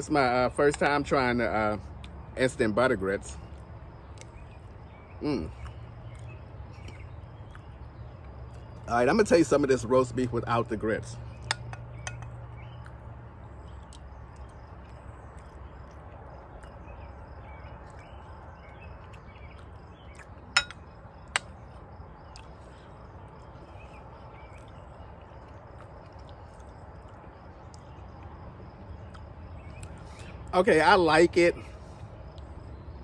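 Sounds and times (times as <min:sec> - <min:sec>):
metal spoon clinking on ceramic bowl: 0:20.6 - 0:20.8.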